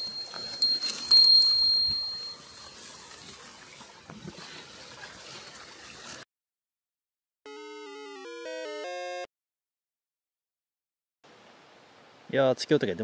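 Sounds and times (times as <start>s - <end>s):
soft rustles: 0.0s - 6.2s
faint outdoor background noise: 11.2s - 13.0s.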